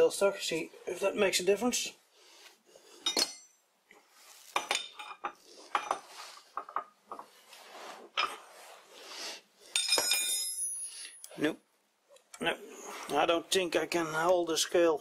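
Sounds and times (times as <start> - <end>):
metal tools clinking and scraping: 3.0 - 3.6, 4.5 - 7.3, 9.7 - 11.4.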